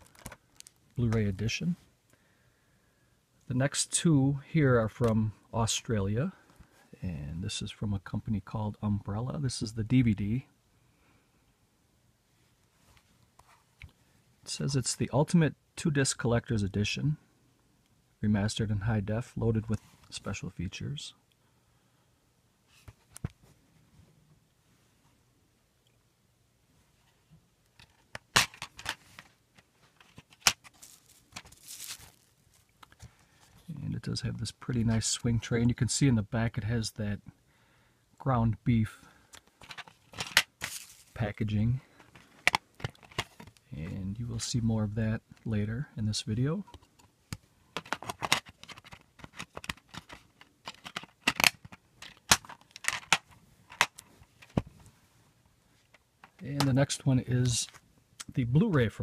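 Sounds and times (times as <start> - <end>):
plastic rustle: 28.5 - 33.7, 39.6 - 41.2
plastic case clicks: 47.8 - 54.6.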